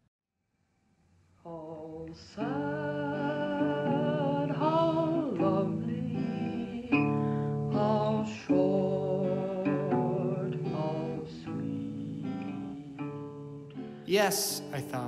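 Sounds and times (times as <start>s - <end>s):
acoustic guitar strumming chords: 2.4s - 15.0s.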